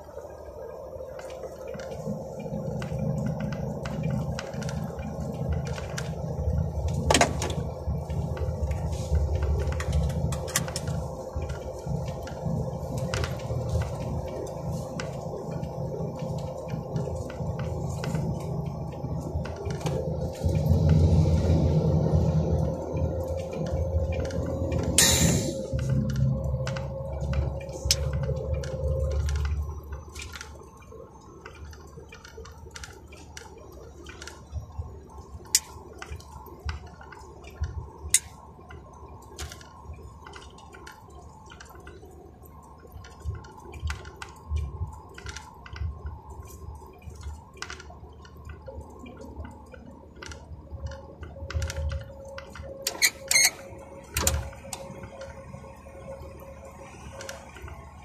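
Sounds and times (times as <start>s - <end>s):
truck engine and road drone: 0.0s - 58.0s.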